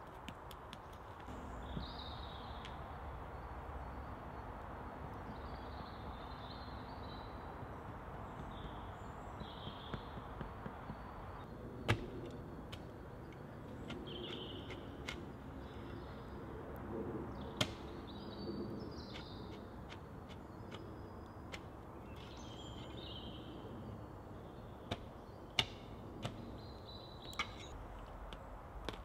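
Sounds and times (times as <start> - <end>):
small birds chirping: 0.7 - 16.6, 17.3 - 28.5.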